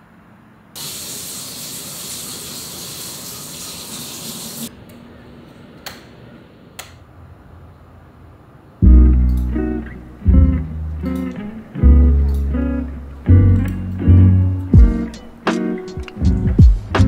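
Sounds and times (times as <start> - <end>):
steady high hiss: 0.8 - 4.8.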